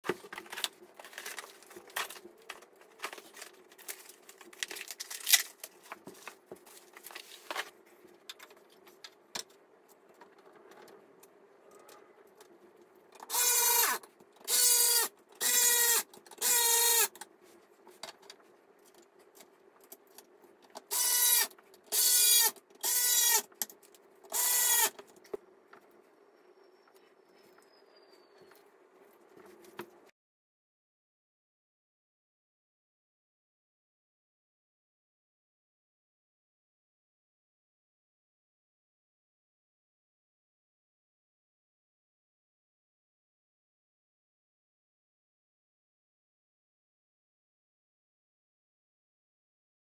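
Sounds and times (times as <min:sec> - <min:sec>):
electric screwdriver whirring: 0:13.3 - 0:17.1, 0:20.9 - 0:23.4, 0:24.3 - 0:25.0.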